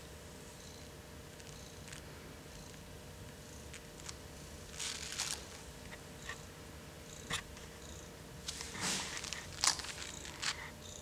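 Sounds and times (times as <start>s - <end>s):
paper rustling: 3.7s - 6.0s, 8.5s - 10.7s.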